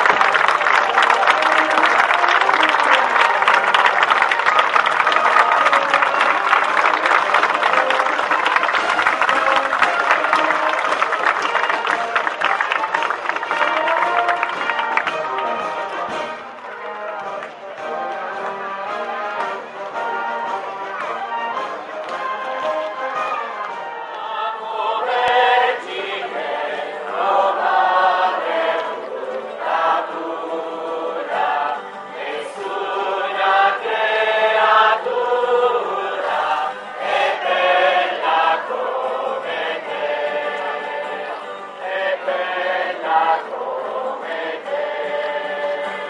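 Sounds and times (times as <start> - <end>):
crowd singing a hymn: 24.0 - 46.0.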